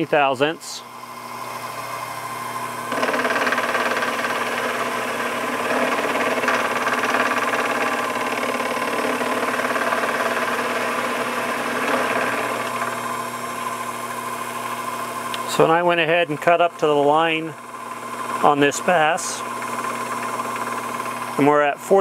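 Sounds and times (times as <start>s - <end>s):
milling machine motor hum: 0.0s - 22.0s
metal cutting noise: 1.4s - 15.1s.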